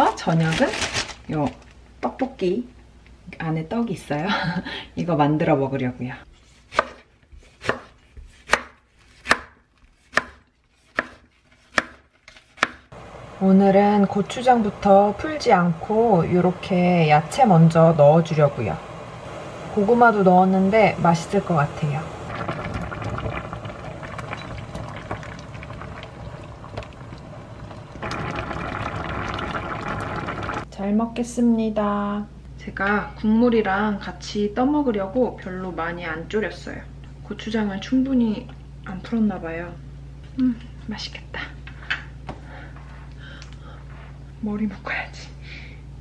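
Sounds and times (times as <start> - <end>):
knife strikes on cutting board: 8.5 - 12.0
sauce bubbling in a wok: 22.2 - 30.7.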